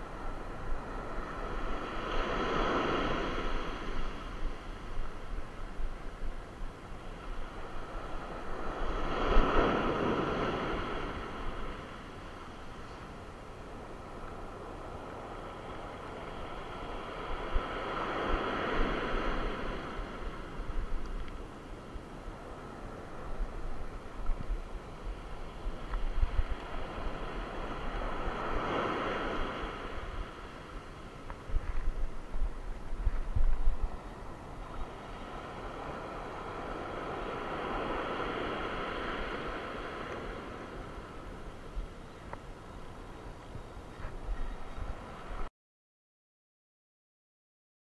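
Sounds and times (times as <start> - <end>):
wave washing up beach: 0.0 - 43.0
wind buffeting microphone: 16.1 - 21.4, 22.9 - 30.5, 31.3 - 42.0, 43.5 - 45.5.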